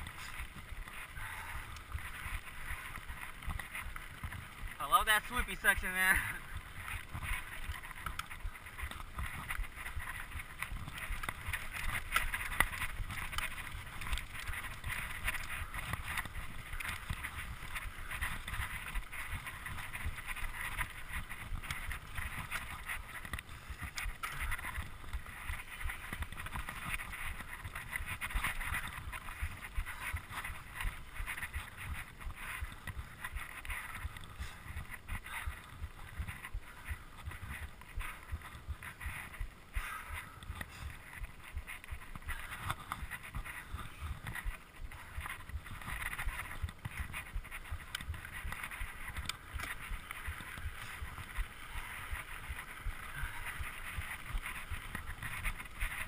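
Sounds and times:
bike rattling over bumps: 0.0 - 56.0
tyres on dirt: 0.0 - 56.0.

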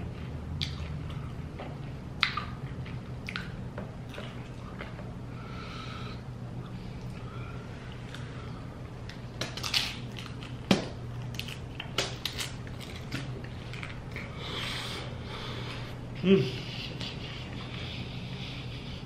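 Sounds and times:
steady low hum: 0.0 - 19.0
tortilla chip crunching: 9.3 - 14.4
chewing: 11.2 - 14.7.

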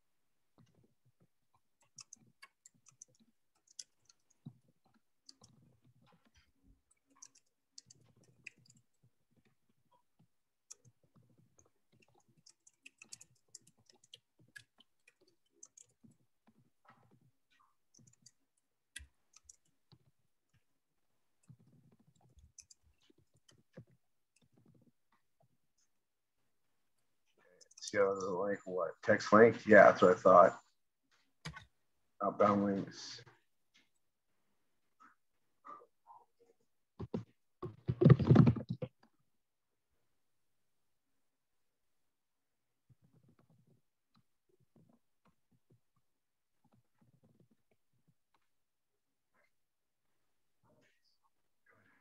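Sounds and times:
faint computer keyboard typing: 0.6 - 20.7, 21.4 - 25.9.

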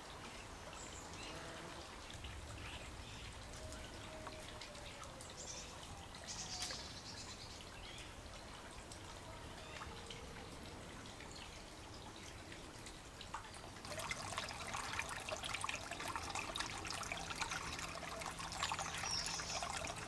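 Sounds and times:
small clicks of dripping water: 0.0 - 20.0.

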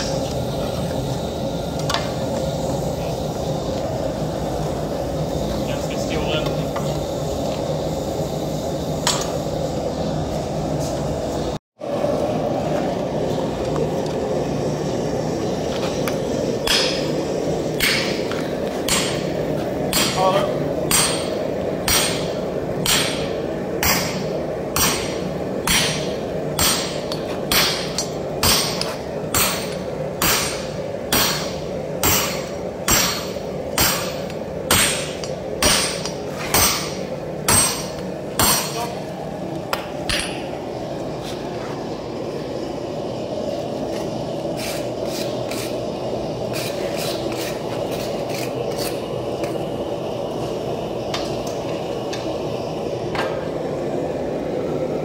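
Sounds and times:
gas forge burner roaring: 0.0 - 55.0
sledgehammer striking on anvil: 16.6 - 17.0, 17.8 - 18.2, 18.9 - 19.2, 19.9 - 20.3, 20.9 - 21.3, 21.9 - 24.2, 24.8 - 38.9.

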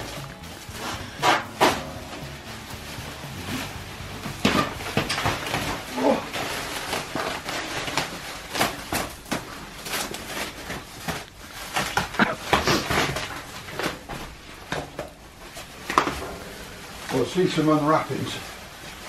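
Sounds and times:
plastic wrap crinkling: 0.0 - 19.0.

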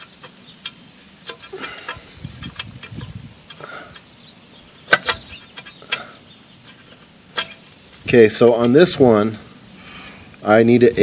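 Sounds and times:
light metal taps and clicks: 0.0 - 4.1, 4.8 - 7.9
sharp metal clicks: 0.0 - 7.8.

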